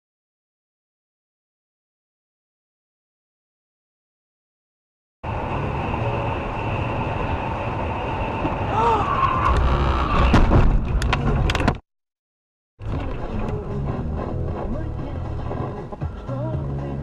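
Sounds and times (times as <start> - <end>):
car road and engine noise: 5.2 - 11.8, 12.8 - 17.0.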